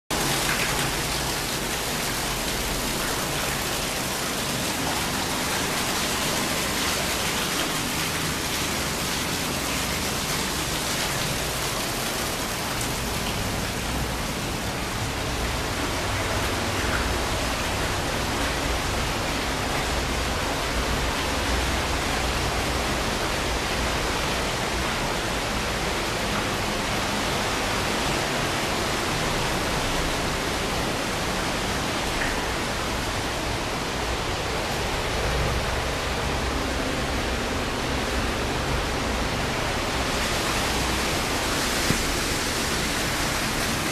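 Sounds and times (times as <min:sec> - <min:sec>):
water pouring down a waterfall: 0:00.1 - 0:43.9.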